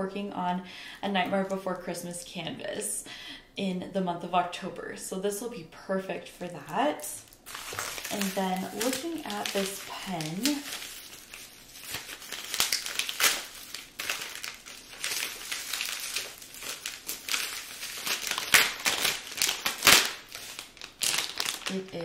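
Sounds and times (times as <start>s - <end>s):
plastic packaging crinkling: 6.6s - 22.0s.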